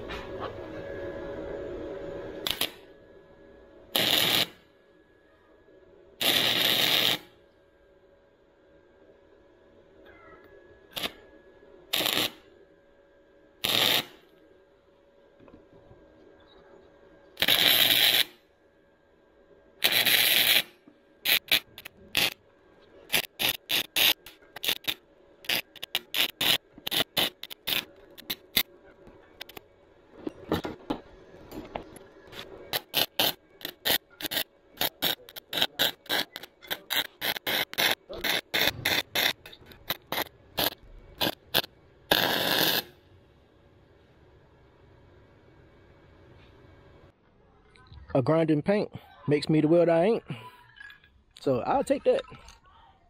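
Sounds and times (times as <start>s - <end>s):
welder arc crackling: 2.4s - 2.9s, 3.9s - 4.6s, 6.2s - 7.4s, 10.9s - 11.3s, 11.9s - 12.5s, 13.6s - 14.4s, 17.4s - 18.4s, 19.8s - 43.2s.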